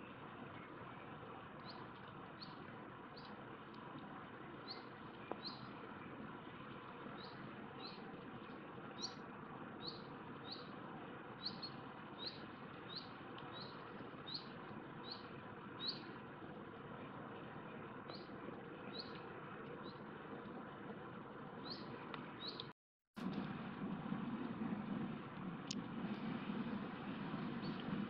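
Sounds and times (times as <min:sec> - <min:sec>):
steady background hiss: 0:00.0 - 0:22.6
small bird chirping: 0:01.6 - 0:03.4, 0:04.6 - 0:05.7, 0:07.2 - 0:08.0, 0:09.0 - 0:09.2, 0:09.8 - 0:10.7, 0:11.4 - 0:16.2, 0:18.1 - 0:19.2, 0:21.6 - 0:22.7.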